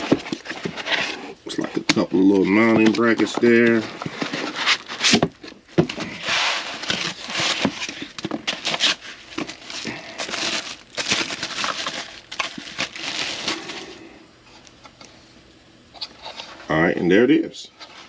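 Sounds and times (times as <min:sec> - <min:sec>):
foam and plastic crinkling: 0:00.0 - 0:14.0.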